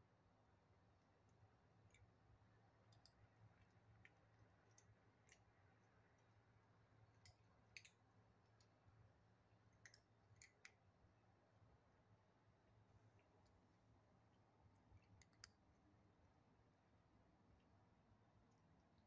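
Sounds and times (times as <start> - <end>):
kittens crunching dry kibble: 2.7 - 8.8, 9.5 - 10.9.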